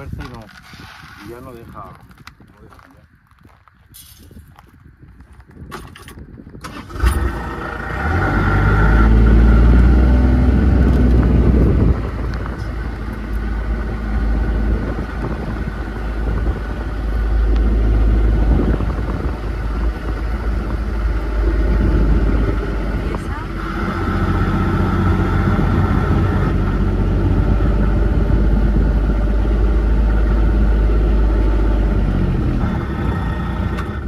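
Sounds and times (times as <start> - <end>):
car engine running: 6.8 - 34.0.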